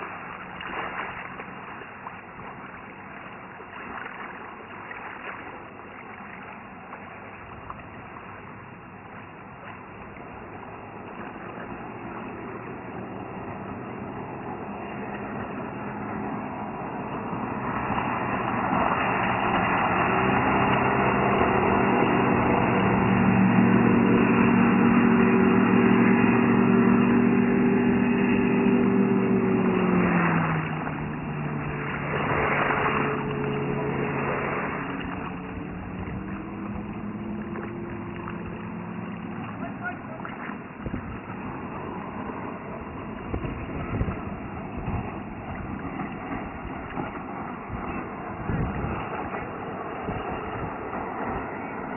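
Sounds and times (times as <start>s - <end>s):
motorboat engine running: 0.0s - 51.9s
water rushing against hull: 0.0s - 51.9s
wind thumping on microphone: 34.7s - 38.5s, 40.5s - 51.9s.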